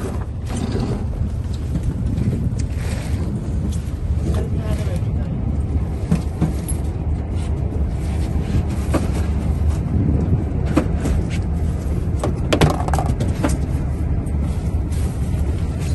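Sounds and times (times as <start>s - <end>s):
boat engine rumbling: 0.0s - 15.9s
objects knocking in boat: 12.2s - 13.6s.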